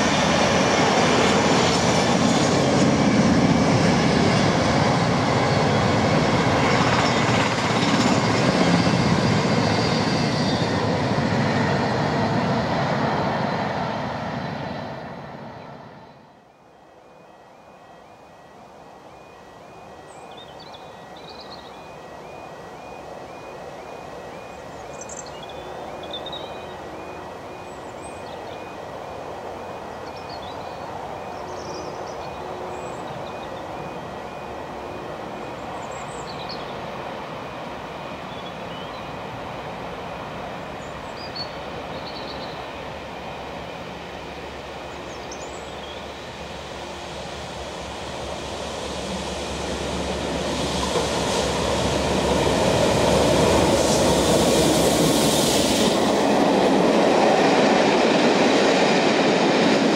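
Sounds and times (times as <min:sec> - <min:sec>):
train rumble: 0:00.0 - 0:59.9
birds chirping: 0:16.0 - 0:37.0, 0:38.0 - 0:39.3, 0:40.5 - 0:46.3
level crossing alarm: 0:16.5 - 0:40.8.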